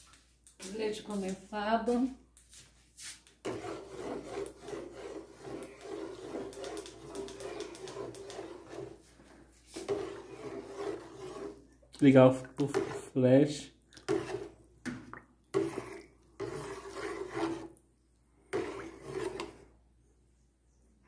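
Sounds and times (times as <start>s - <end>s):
cardboard carton rubbing and rasping: 3.4s - 9.0s, 9.6s - 11.6s, 15.6s - 17.7s, 18.5s - 19.5s.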